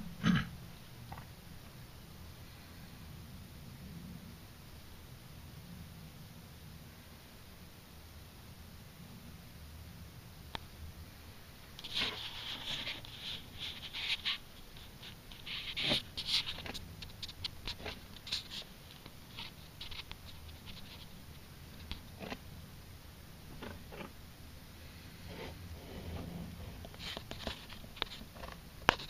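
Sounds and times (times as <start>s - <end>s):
scratchy rustling with clicks: 11.8s - 22.4s, 25.3s - 29.0s.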